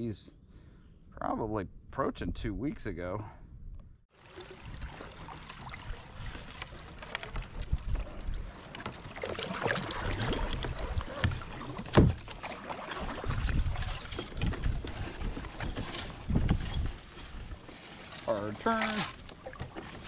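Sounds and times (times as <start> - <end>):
paddle splashing in water: 4.1 - 20.0.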